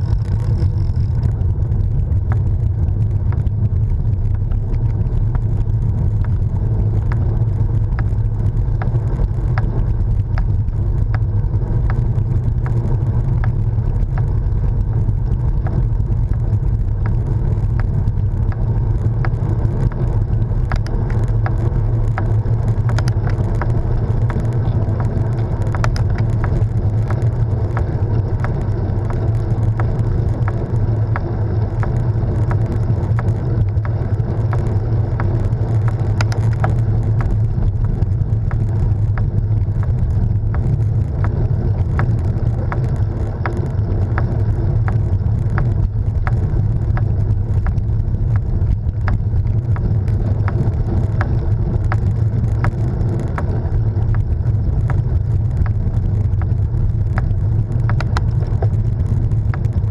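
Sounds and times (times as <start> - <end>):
bike ticks and rattles: 0.0 - 59.9
road rumble: 0.0 - 59.9
wind rush: 0.0 - 59.9.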